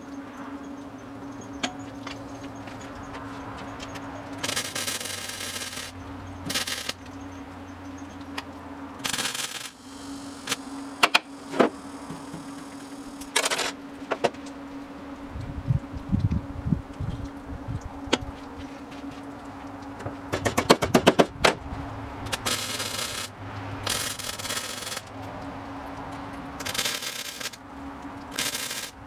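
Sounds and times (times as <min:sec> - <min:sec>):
welder hum: 0:01.6 - 0:29.0
welding arc crackle: 0:01.9 - 0:14.5, 0:19.2 - 0:29.0
sharp clicks: 0:07.9 - 0:13.8, 0:22.2 - 0:29.0.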